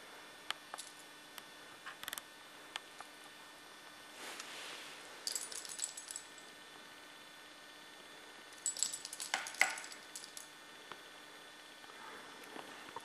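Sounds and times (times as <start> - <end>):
metallic toy jingling: 5.3 - 6.4, 8.6 - 10.4.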